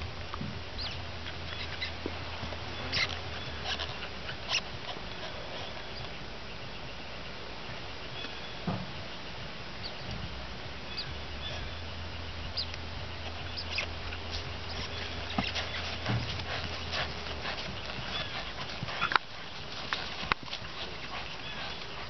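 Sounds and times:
hooves on grass: 0.0 - 22.0
horse tack rattling: 1.2 - 5.9, 13.2 - 22.0.

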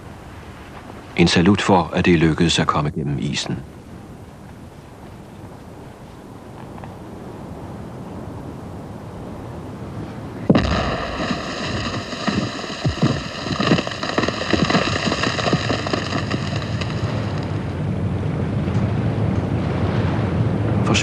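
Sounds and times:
crackling and popping fragments: 10.5 - 17.8
explosive blast: 10.5 - 17.9.

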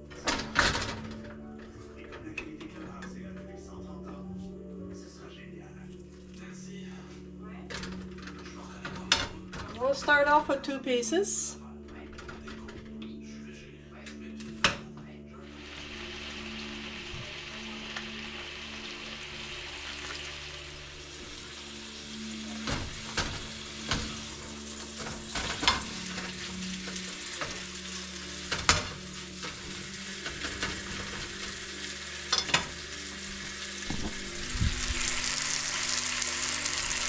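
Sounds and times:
meat sizzling in a frying pan: 15.5 - 37.0.

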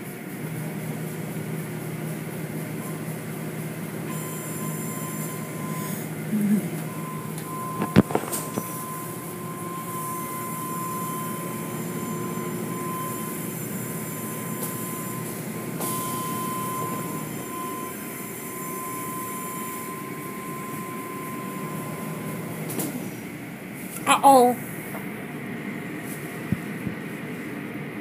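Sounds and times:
thin steady high tone: 4.1 - 22.5.

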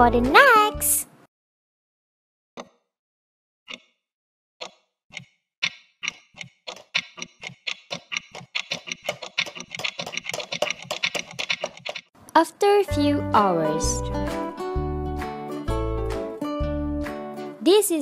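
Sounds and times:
clock ticking: 4.6 - 12.1.

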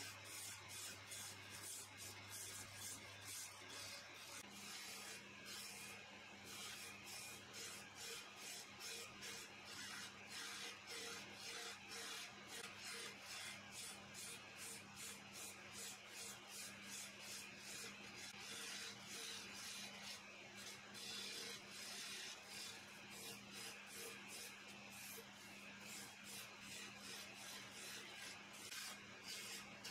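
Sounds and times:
chisel scraping spinning wood: 7.6 - 29.9.

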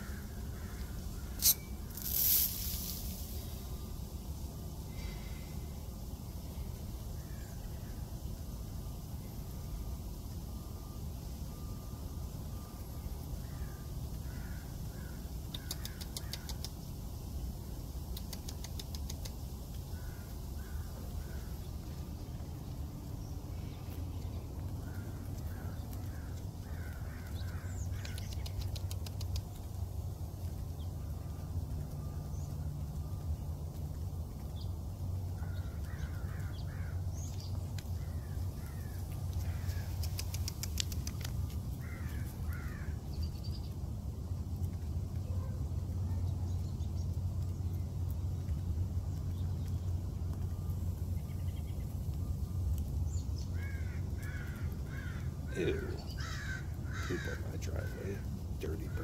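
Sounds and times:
steady low rumble: 0.0 - 15.2, 15.8 - 59.0
soft bird calls: 13.4 - 17.0, 18.0 - 29.8, 34.4 - 43.8, 44.6 - 59.0
beak taps on concrete: 15.5 - 16.8, 18.1 - 19.4, 26.9 - 29.6.

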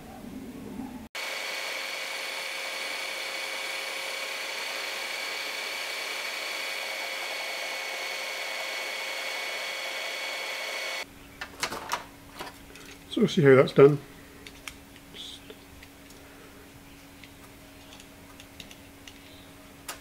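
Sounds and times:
belt sander grinding metal: 1.2 - 11.0
motor whine: 1.2 - 11.0.

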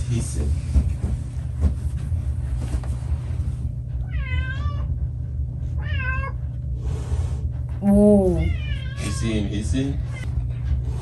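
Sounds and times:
steady low hum: 0.0 - 11.0
cat meowing: 4.0 - 4.9, 7.9 - 9.3.

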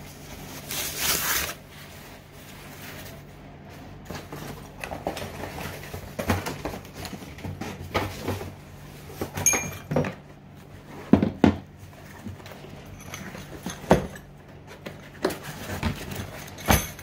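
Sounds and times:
tissue paper rustling: 0.0 - 6.0.

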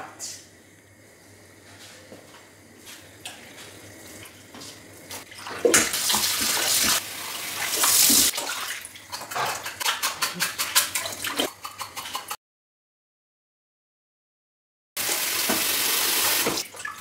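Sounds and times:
tap running into metal bowl: 15.4 - 16.6.

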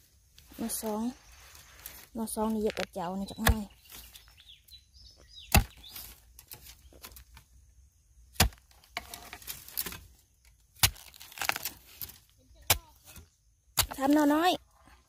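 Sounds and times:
scraping of earth: 0.0 - 4.5, 5.2 - 7.6, 8.3 - 15.0
blade chopping into soil: 2.7 - 4.0, 5.5 - 7.2, 8.3 - 10.1, 10.7 - 13.2.

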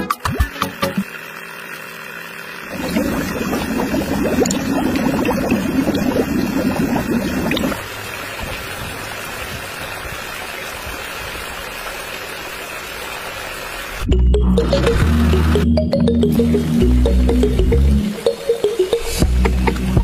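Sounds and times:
water pouring into plastic tank: 2.7 - 13.0.

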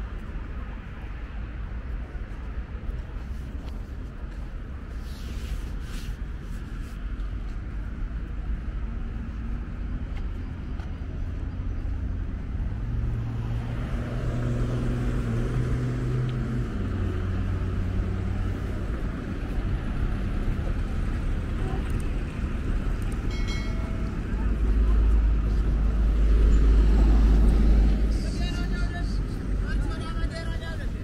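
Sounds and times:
road noise rumble: 0.0 - 31.0
passing car engine hum: 11.5 - 29.7.

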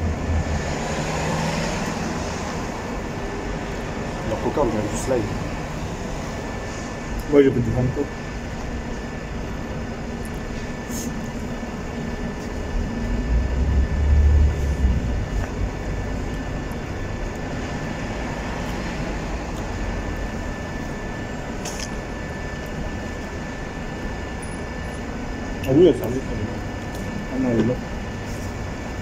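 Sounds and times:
passing traffic: 0.0 - 29.0
low rumble: 12.7 - 16.6.

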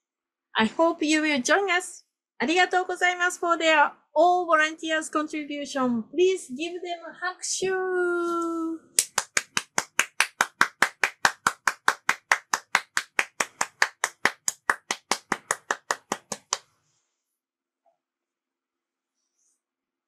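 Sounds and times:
hand clapping: 9.0 - 16.7.

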